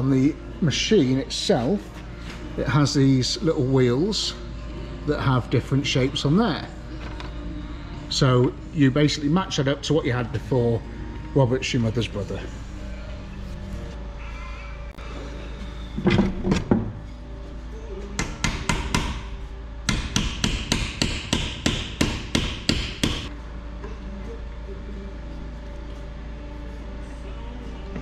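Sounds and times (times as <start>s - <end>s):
hammer striking metal: 18.2s - 23.3s.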